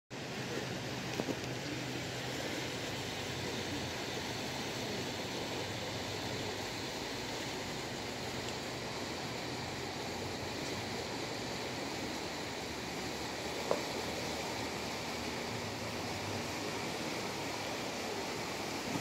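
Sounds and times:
river rushing: 0.2s - 19.0s.

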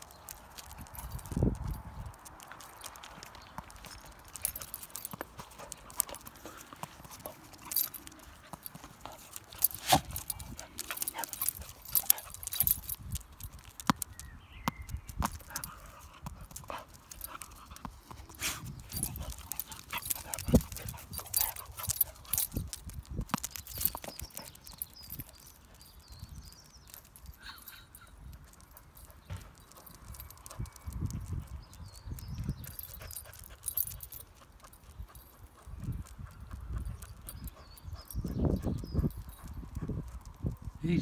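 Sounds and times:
dog claws clicking on tarmac: 0.0s - 25.9s.

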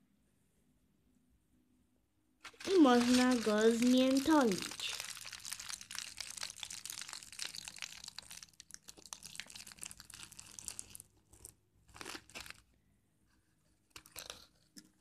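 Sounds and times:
aluminium foil crumpling: 2.4s - 12.7s.

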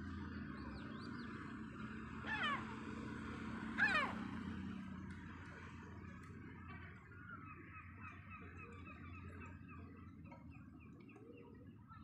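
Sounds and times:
gull cries: 2.2s - 2.8s, 3.8s - 4.2s.

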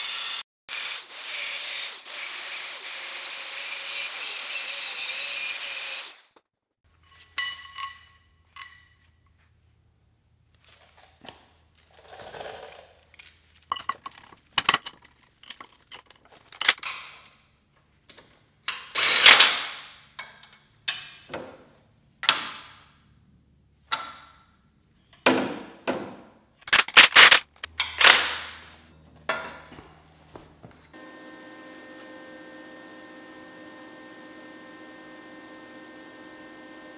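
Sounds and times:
angle grinder cutting steel: 0.0s - 6.4s
metallic clanks and knocks: 29.2s - 30.0s.

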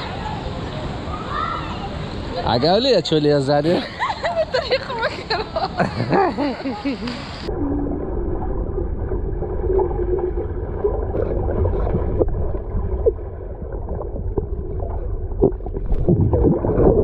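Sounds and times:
water splashing: 6.1s - 17.0s
muffled underwater rumble: 7.3s - 17.0s.

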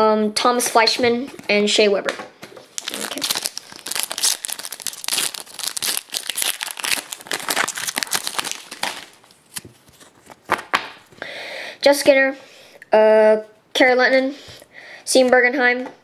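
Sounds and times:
foil wrapper crinkling and tearing: 2.7s - 10.8s
light rustles of cards: 8.8s - 11.1s.

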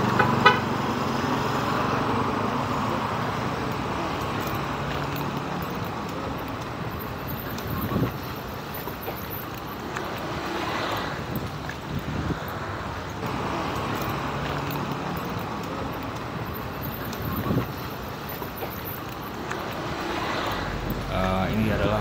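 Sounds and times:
road traffic: 0.0s - 22.0s
wind buffeting microphone: 6.7s - 8.7s, 11.1s - 13.3s, 16.3s - 18.2s.

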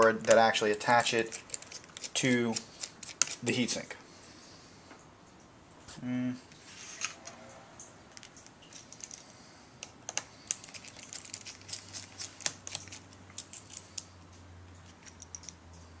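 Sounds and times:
screwdriver and small screws clicking: 0.2s - 3.4s, 10.1s - 14.1s, 14.9s - 15.6s.

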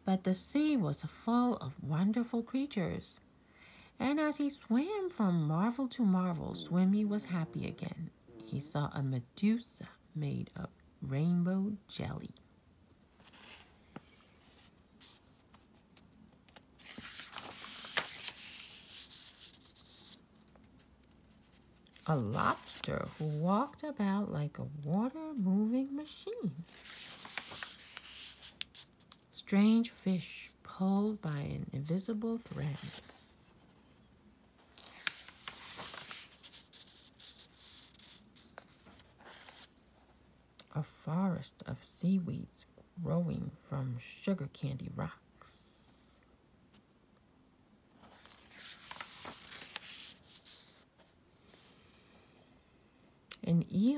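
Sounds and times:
paper page turning: 13.1s - 23.7s, 26.6s - 29.2s, 31.0s - 33.8s, 34.6s - 39.8s, 48.0s - 51.7s.

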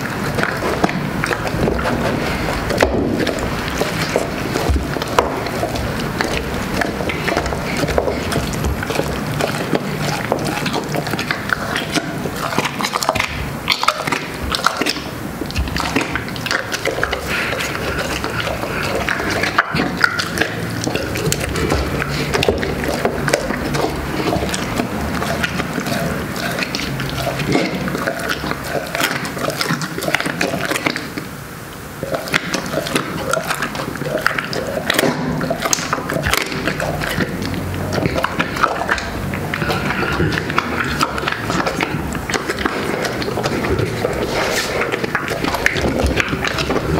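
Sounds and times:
dog chewing and crunching bones: 0.0s - 46.9s.

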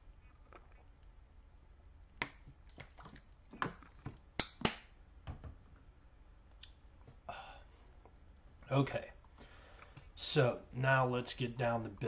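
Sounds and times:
low background hum: 0.0s - 12.0s
faint clicks and taps: 9.2s - 10.1s.

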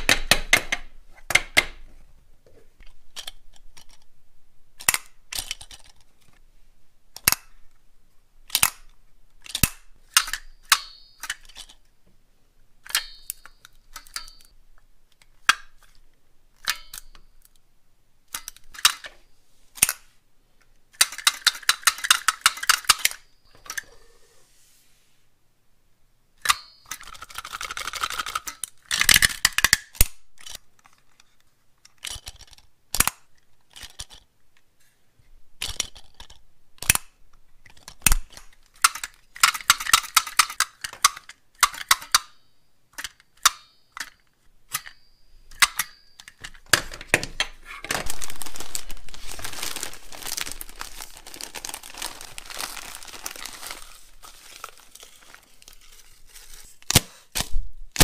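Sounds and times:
plastic toy clacking: 3.1s - 4.1s, 4.8s - 6.1s, 7.2s - 7.6s, 8.5s - 11.8s, 12.8s - 14.5s, 21.0s - 23.9s, 26.4s - 34.3s, 35.6s - 55.8s
rapid plastic clattering: 46.7s - 56.6s.

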